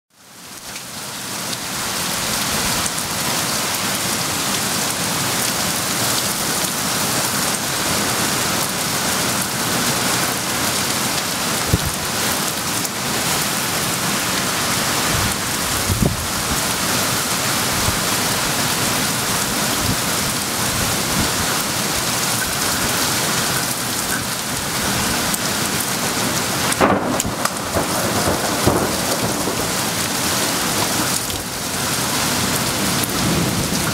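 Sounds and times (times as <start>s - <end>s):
torrential rain pouring: 0.1s - 33.9s
thunder cracks: 11.7s - 12.1s, 26.7s - 31.6s.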